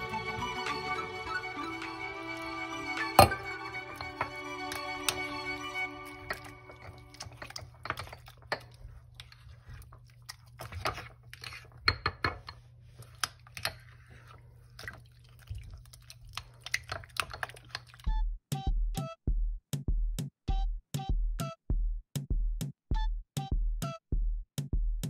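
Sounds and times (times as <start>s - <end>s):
spoon stirring oats in bowl: 3.1s - 18.0s.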